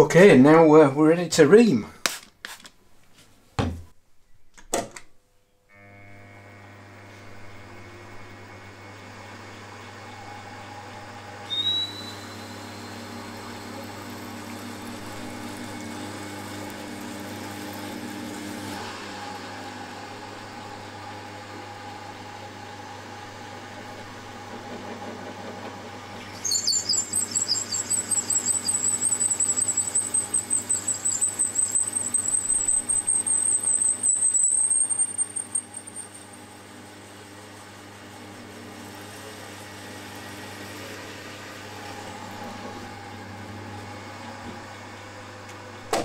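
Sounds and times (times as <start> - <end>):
milling machine running: 5.8 - 45.6
reamer squealing in metal: 11.4 - 15.5, 26.2 - 36.6.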